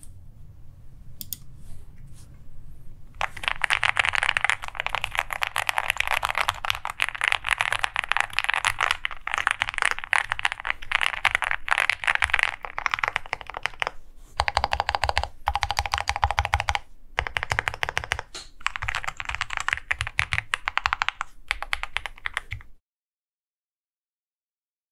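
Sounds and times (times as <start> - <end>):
mechanical keyboard typing: 3.2 - 22.7.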